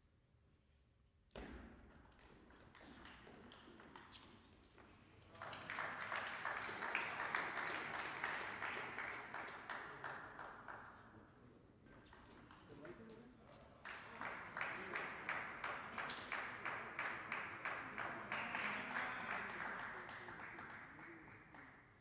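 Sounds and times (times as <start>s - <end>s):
spectators clapping: 5.3s - 11.0s, 13.8s - 22.0s.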